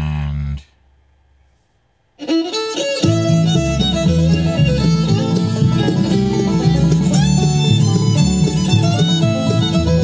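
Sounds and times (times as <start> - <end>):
bluegrass fiddle tune from speaker: 2.2 - 10.0.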